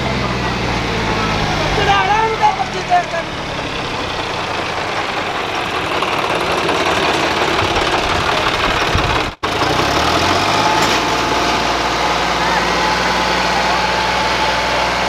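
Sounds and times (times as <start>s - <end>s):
low engine hum: 0.0s - 15.0s
tractor diesel engines under load: 0.0s - 15.0s.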